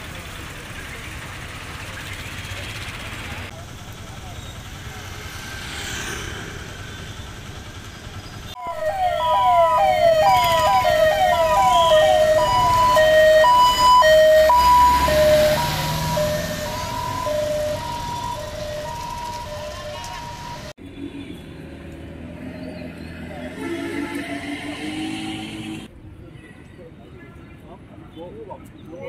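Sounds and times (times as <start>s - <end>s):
street traffic noise: 0.0s - 29.0s
emergency vehicle siren wailing: 8.6s - 20.8s.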